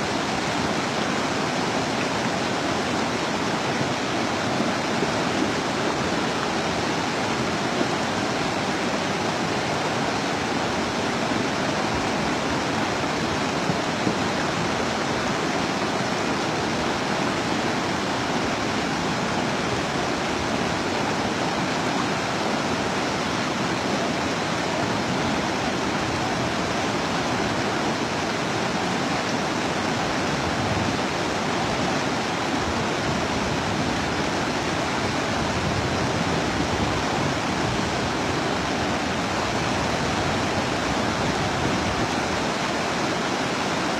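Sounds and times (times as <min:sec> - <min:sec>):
river rushing in flood: 0:00.0 - 0:43.9.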